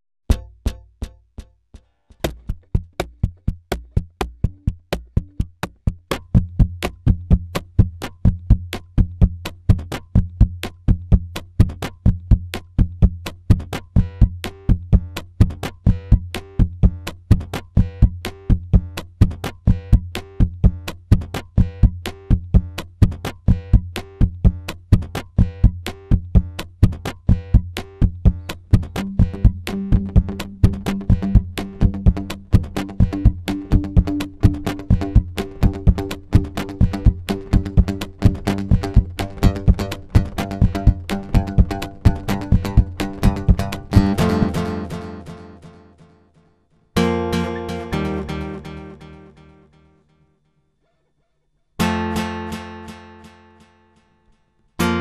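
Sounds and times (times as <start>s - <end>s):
percussive acoustic guitar: 13.2s - 46.1s, 47.0s - 49.4s, 51.8s - 54.0s, 54.8s - 55.0s.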